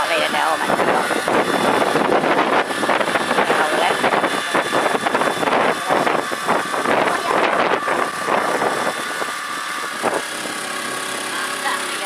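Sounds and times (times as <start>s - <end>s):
small boat engine running: 0.0s - 12.0s
wind buffeting microphone: 0.0s - 12.0s.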